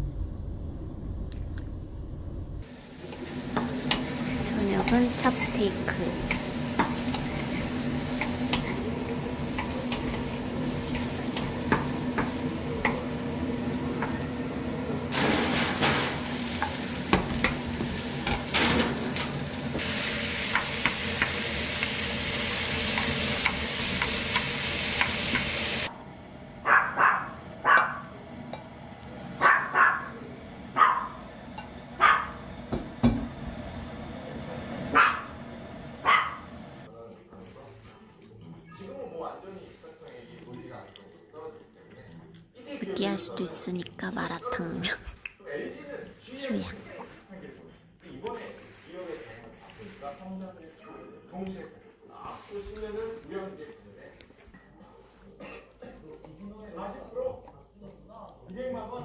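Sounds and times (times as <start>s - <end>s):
low rumble: 0.0s - 2.7s
steady hum: 0.0s - 15.1s
meat and vegetables sizzling: 2.6s - 25.9s
wooden spatula scraping pan: 6.2s - 13.0s
small dog barking: 26.6s - 28.1s, 29.4s - 30.2s, 30.8s - 31.2s, 32.0s - 32.4s, 34.9s - 35.4s, 36.0s - 36.4s.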